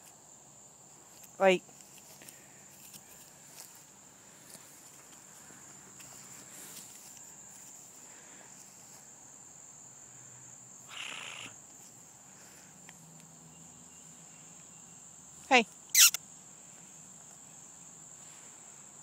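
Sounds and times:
short rustle: 1.0s - 9.1s
high-pitched insect buzz: 10.8s - 11.6s, 13.5s - 16.2s.

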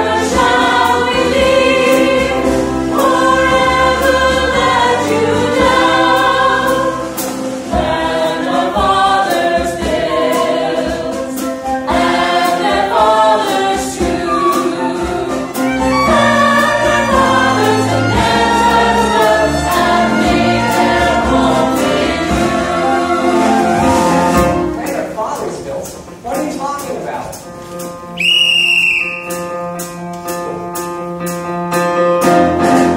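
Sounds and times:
chorus singing in harmony: 0.0s - 24.8s
small band playing: 0.0s - 32.9s.

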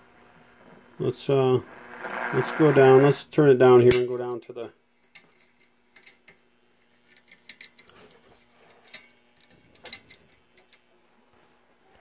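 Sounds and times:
low steady hum: 0.0s - 12.0s
faint radio tuning clicks: 0.6s - 3.2s.

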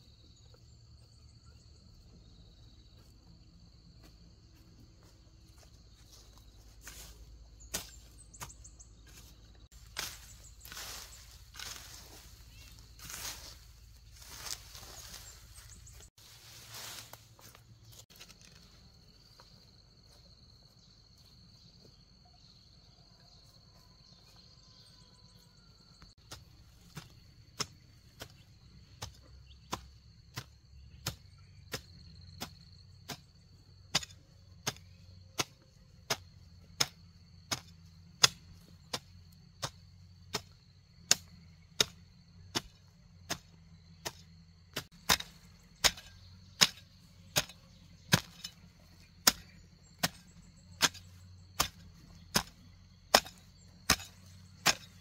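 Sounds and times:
hoe chopping into soil: 6.8s - 18.4s, 26.2s - 55.0s.

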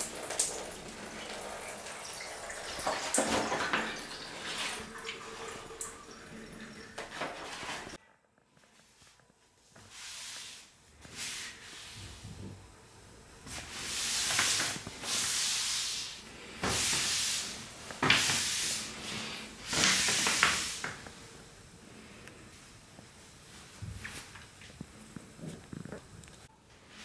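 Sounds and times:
towel wiping wet paper: 0.1s - 8.0s.

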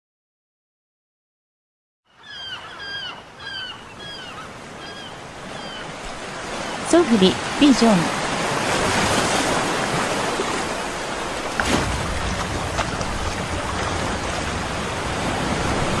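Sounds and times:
water lapping surf hiss: 2.8s - 16.0s
wind rumble on microphone: 8.4s - 16.0s.

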